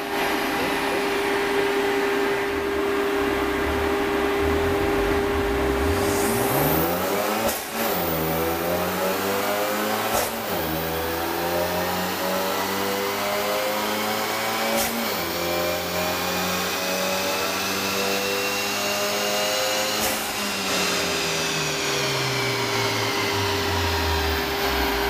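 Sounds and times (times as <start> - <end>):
car engine revving: 0.2 - 25.0
steady hum: 0.4 - 7.3.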